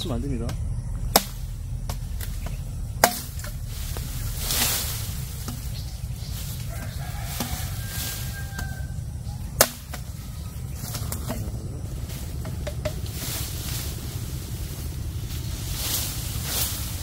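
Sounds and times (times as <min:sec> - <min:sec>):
steady low rumble: 0:00.0 - 0:17.0
chopper blade knocking bamboo: 0:00.4 - 0:06.0, 0:06.7 - 0:07.9, 0:09.4 - 0:11.6, 0:12.4 - 0:13.3
sharp chop into bamboo: 0:01.1 - 0:02.0, 0:03.0 - 0:03.5, 0:09.6 - 0:10.1.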